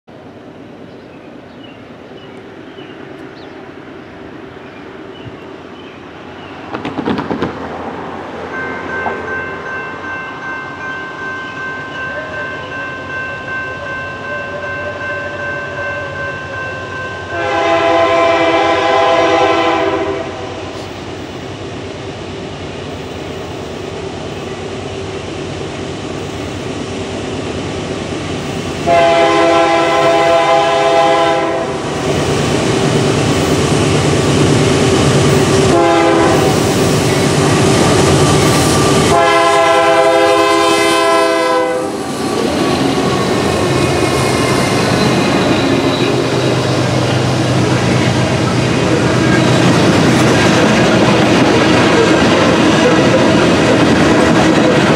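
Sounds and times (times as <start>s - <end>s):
train engine and wheels rumbling: 0.1s - 54.9s
locomotive horn: 12.0s - 20.8s, 28.8s - 31.8s, 35.5s - 36.9s, 38.0s - 47.2s.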